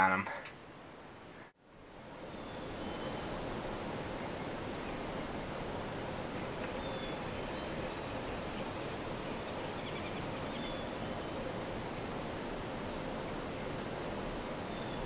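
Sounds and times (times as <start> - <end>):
outdoor background hiss: 0.0 - 15.0
small birds chirping: 5.8 - 12.0, 14.7 - 15.0.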